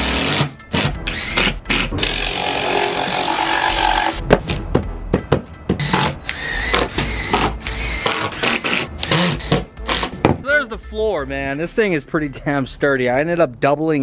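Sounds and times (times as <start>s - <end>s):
cordless drill whirring: 5.8s - 10.1s
knocks on wooden boards: 9.5s - 10.4s.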